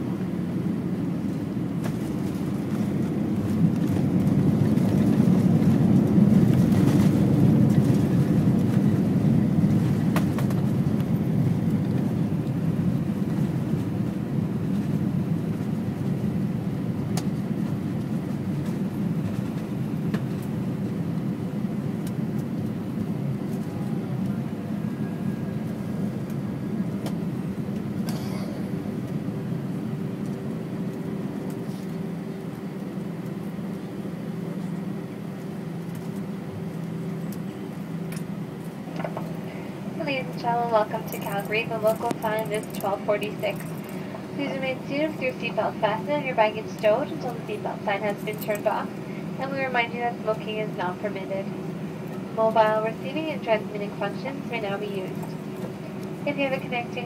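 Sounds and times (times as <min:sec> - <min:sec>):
jet engine noise in cabin: 0:00.0 - 0:57.0.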